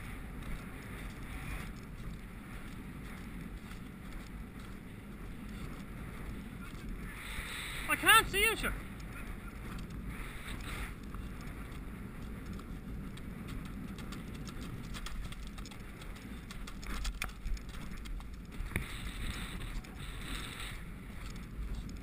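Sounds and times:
horse hoofbeats on turf: 0.0s - 7.1s, 9.0s - 22.0s
wind noise: 0.0s - 22.0s.

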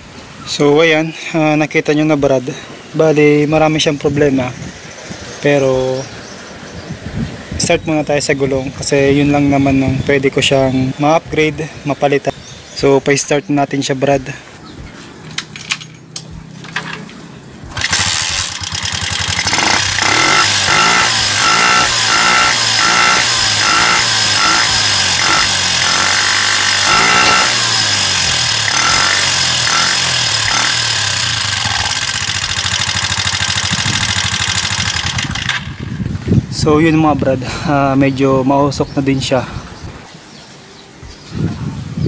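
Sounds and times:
motorcycle engine starting and revving: 15.1s - 37.4s.

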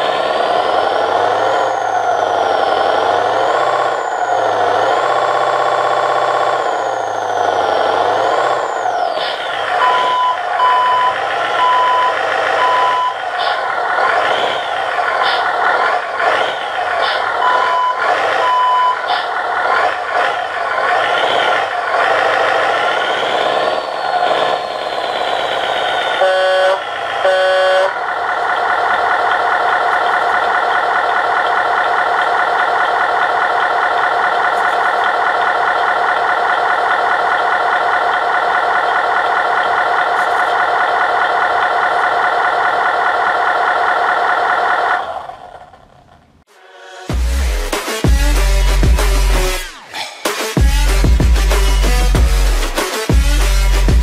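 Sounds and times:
simulated truck engine revving: 0.0s - 54.0s
short high beeps: 9.8s - 13.2s, 17.4s - 19.1s
horn blasts: 26.2s - 28.0s.

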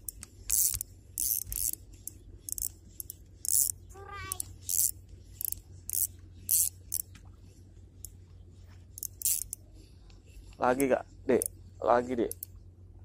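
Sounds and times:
fishing reel cranking rasp: 0.0s - 7.1s, 9.0s - 9.6s.

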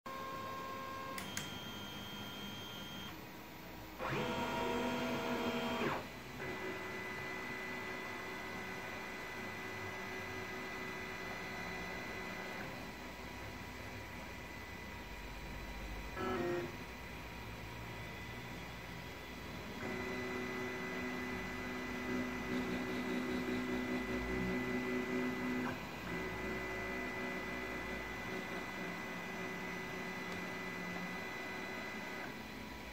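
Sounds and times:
click: 1.2s - 1.6s, 30.3s - 30.5s
printer stepper motors whining: 3.9s - 32.9s.

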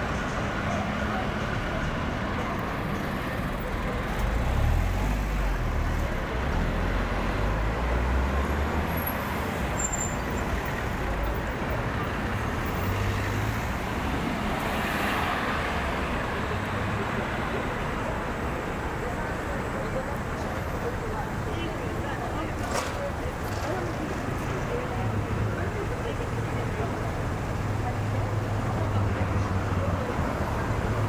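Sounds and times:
cars driving past: 0.0s - 20.9s
city background noise: 0.0s - 31.0s.

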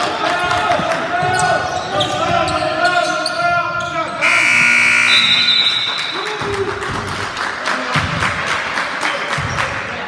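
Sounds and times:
scoreboard horn: 4.2s - 5.8s.

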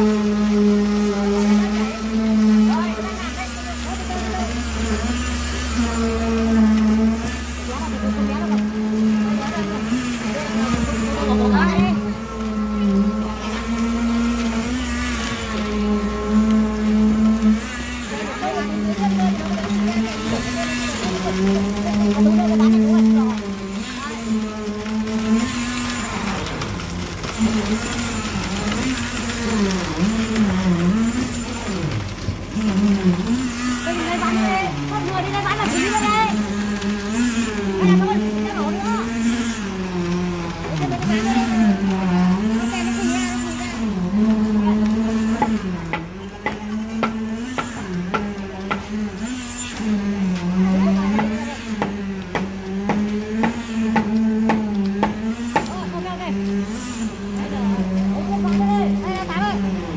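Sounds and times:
motor humming with wavering pitch: 0.0s - 59.9s.

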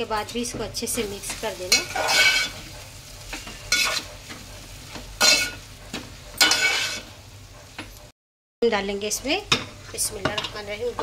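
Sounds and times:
low sizzle of frying: 0.0s - 11.0s
metal spoon scraping pot: 1.7s - 2.6s.

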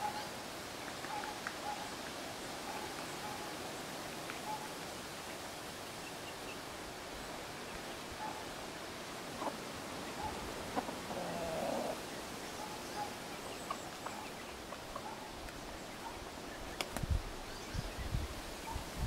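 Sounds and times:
steady outdoor hiss: 0.0s - 19.0s
rooster clucking: 10.3s - 12.0s.

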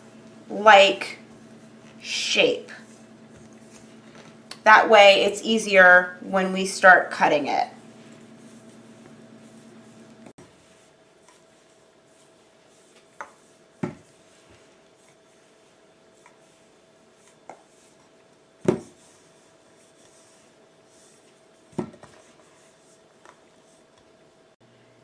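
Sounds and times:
rolling pin rubbing on dough: 0.0s - 24.0s.

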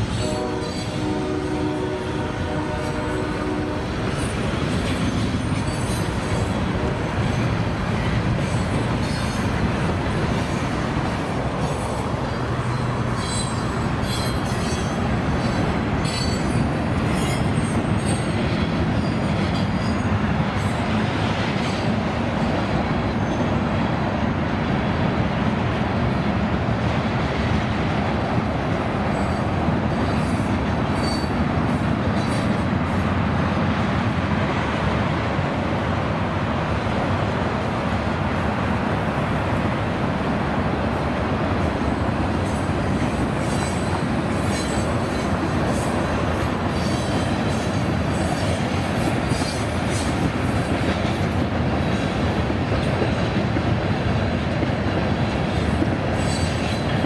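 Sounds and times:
rumble of wheels on rail: 0.0s - 57.0s
high wheel squeals: 11.7s - 18.4s, 29.1s - 31.4s, 42.5s - 46.0s.

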